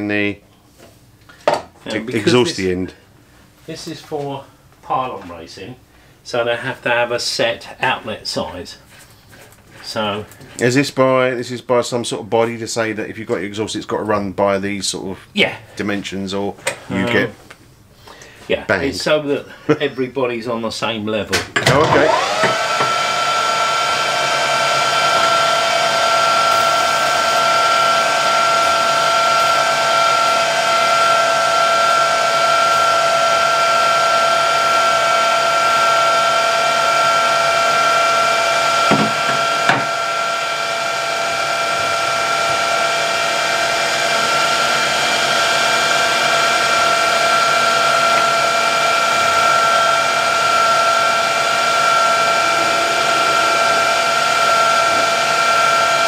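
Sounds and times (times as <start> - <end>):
metal lathe whining: 21.8 - 56.0.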